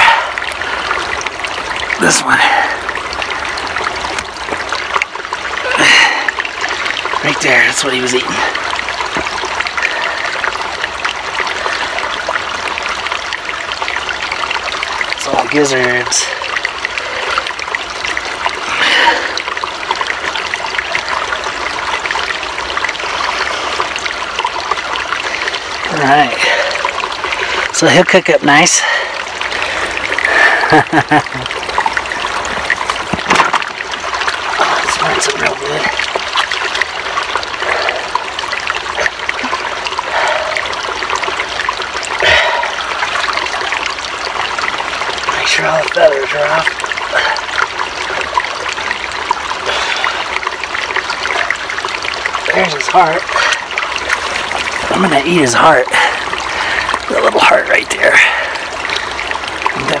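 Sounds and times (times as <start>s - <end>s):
small stream running: 0.0s - 60.0s
water splashing: 0.0s - 60.0s.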